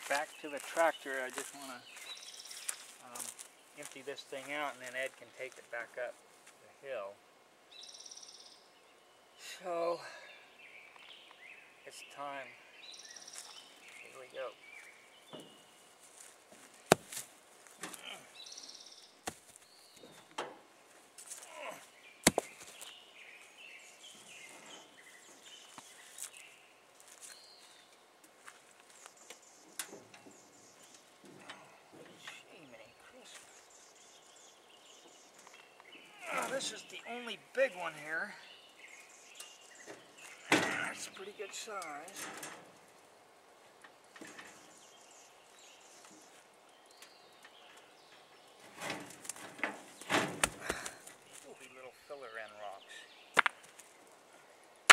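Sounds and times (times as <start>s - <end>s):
faint birds chirping: 0.0s - 54.9s
small clicks and rustles: 46.0s - 50.1s.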